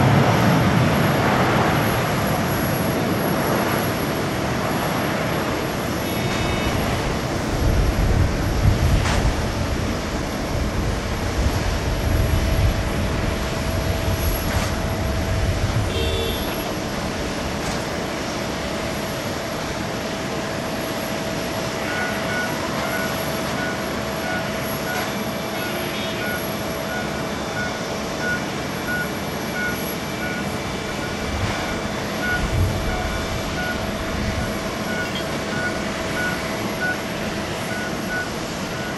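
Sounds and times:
jet engine rumble: 0:00.0 - 0:38.9
short electronic beeps: 0:21.8 - 0:38.9.

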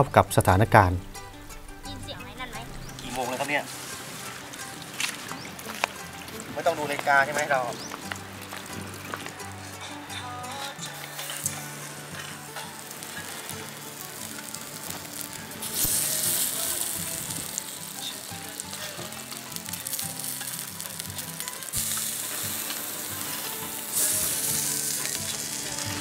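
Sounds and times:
scallops sizzling on grill: 0:00.4 - 0:26.0.

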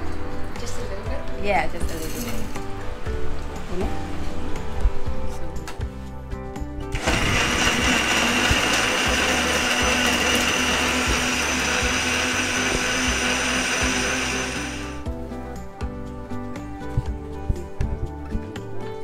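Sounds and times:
blender running: 0:06.9 - 0:15.0.

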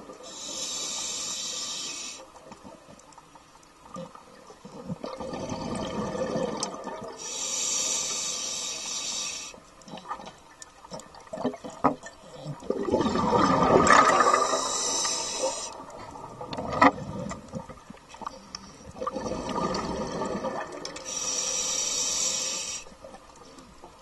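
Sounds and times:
regulator inhale hiss: 0:00.2 - 0:02.4, 0:07.2 - 0:09.7, 0:14.2 - 0:16.0, 0:21.0 - 0:23.1
exhaled bubbles gurgling: 0:03.9 - 0:07.3, 0:09.8 - 0:21.3.

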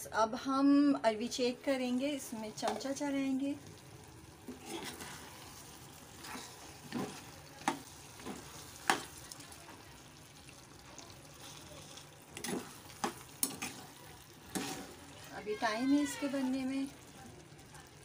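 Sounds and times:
masala sizzling: 0:00.0 - 0:18.0
spoon scraping a steel pot: 0:14.5 - 0:14.9.

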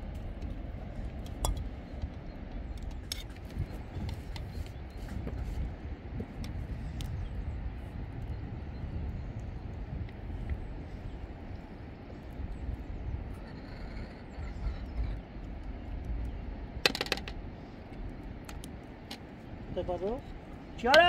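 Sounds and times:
wind rumbling on microphone: 0:00.0 - 0:21.0.

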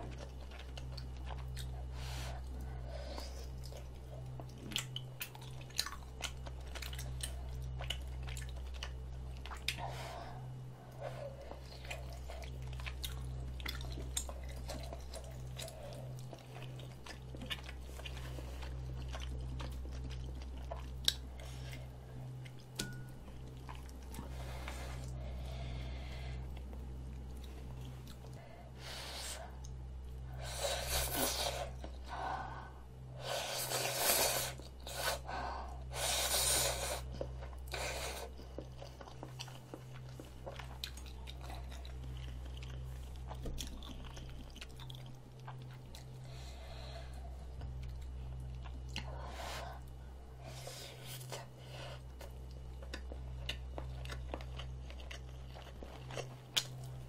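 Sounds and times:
person chewing: 0:00.0 - 0:32.6, 0:33.2 - 0:57.0.

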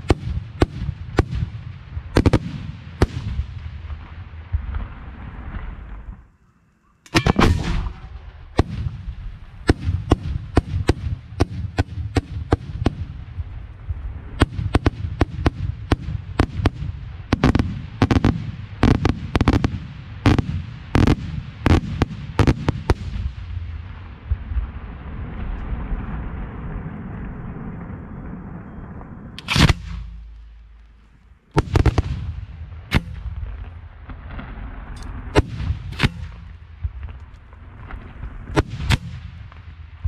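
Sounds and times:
fireworks bangs: 0:00.0 - 0:06.3, 0:07.1 - 0:40.0
low rumble: 0:12.7 - 0:17.4, 0:23.1 - 0:40.0.

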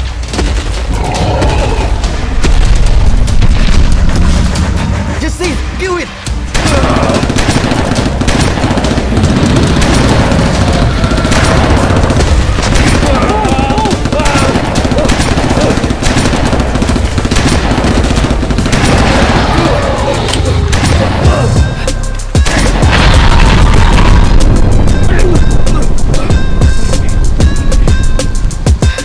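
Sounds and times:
film music score: 0:00.0 - 0:29.0
rapid automatic gunfire: 0:06.5 - 0:21.6.

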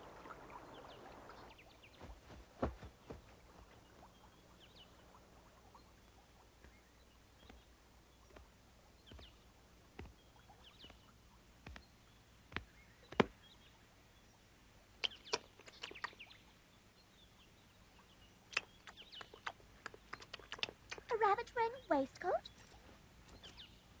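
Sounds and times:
faint high bird chirps: 0:15.0 - 0:23.9.

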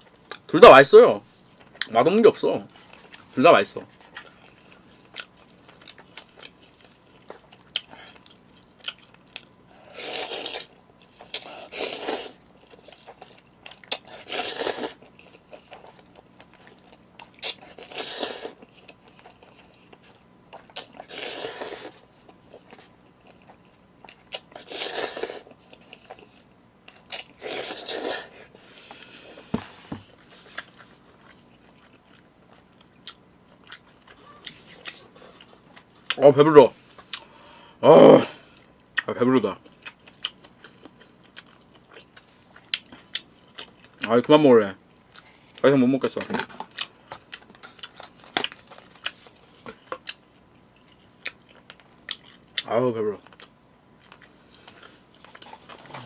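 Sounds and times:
noodle slurping and chewing: 0:09.8 - 0:29.5.

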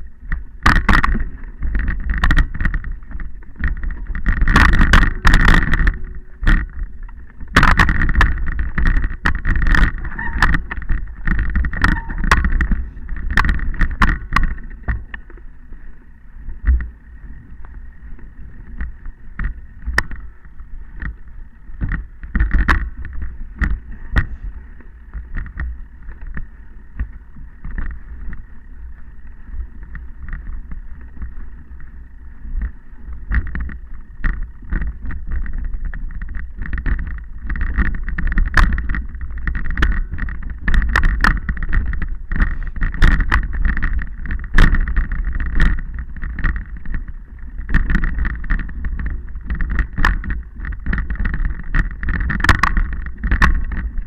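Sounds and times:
wind rumble on microphone: 0:00.0 - 0:54.0
camera rattling and knocking: 0:00.3 - 0:15.5, 0:21.8 - 0:24.4, 0:25.1 - 0:26.5, 0:33.3 - 0:54.0.

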